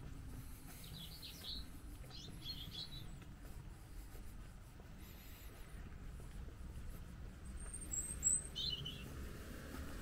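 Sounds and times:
songbird chirping: 0:00.3 - 0:03.8, 0:07.2 - 0:10.0.

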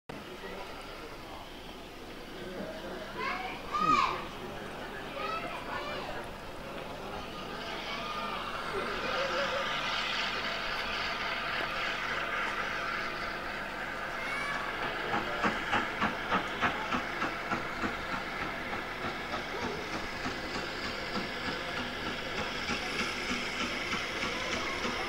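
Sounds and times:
steam hissing: 0:00.2 - 0:25.0
wheels clacking over rail joints: 0:09.6 - 0:25.0.

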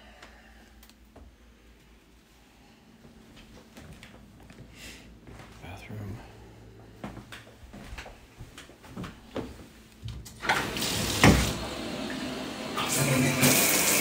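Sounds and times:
water rushing from tub spout: 0:10.4 - 0:14.0.

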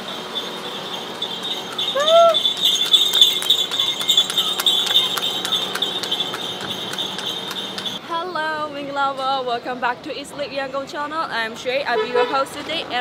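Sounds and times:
high ringing: 0:00.0 - 0:08.0
rhythmic clicking: 0:00.0 - 0:08.0.

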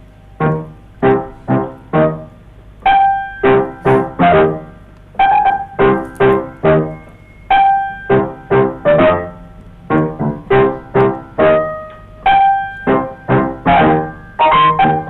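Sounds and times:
improvised solo piano: 0:00.0 - 0:15.0.

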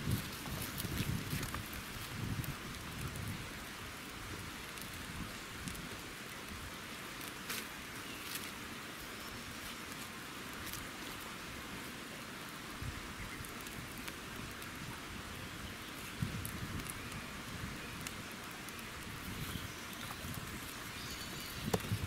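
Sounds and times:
campfire crackling: 0:00.0 - 0:22.0
fire pops: 0:16.1 - 0:17.2, 0:18.0 - 0:22.0.

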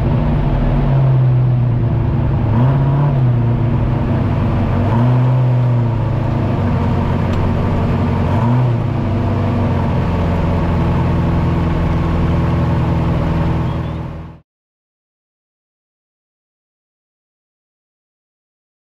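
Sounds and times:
truck engine running from cab: 0:00.0 - 0:14.4.

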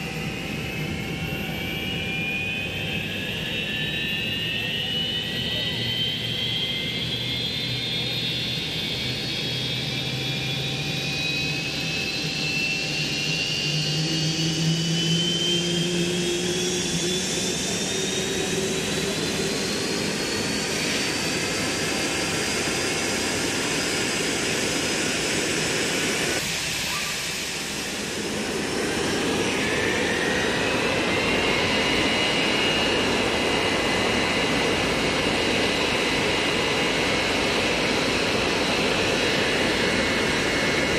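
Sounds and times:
jet engine whine rising: 0:00.0 - 0:40.9
jet noise rush: 0:18.2 - 0:40.9.

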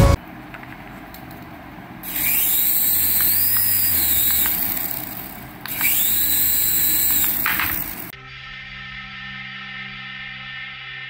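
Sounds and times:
toy helicopter motor whine: 0:02.0 - 0:08.1.

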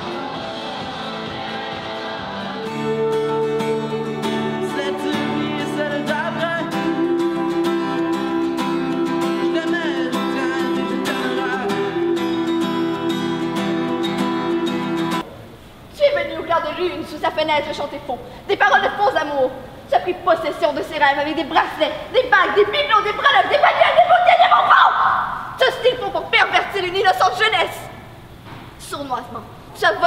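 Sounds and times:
sustained music: 0:00.0 - 0:15.2
acoustic guitar strumming: 0:00.0 - 0:15.3
young man singing: 0:02.6 - 0:14.9.

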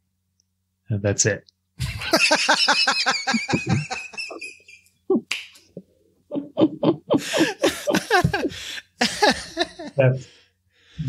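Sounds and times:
people laughing: 0:01.8 - 0:04.8, 0:06.3 - 0:10.2.

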